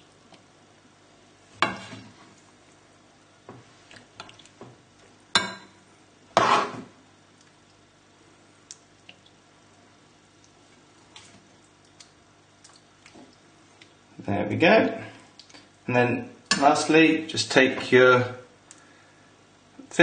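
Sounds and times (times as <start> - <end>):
metal spoon scraping a pan: 6.4 - 6.9.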